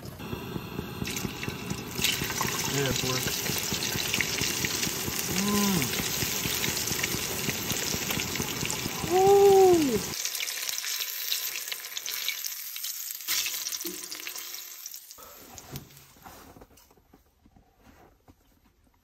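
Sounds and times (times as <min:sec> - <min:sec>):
fish sizzling in hot oil: 0:00.2 - 0:15.2.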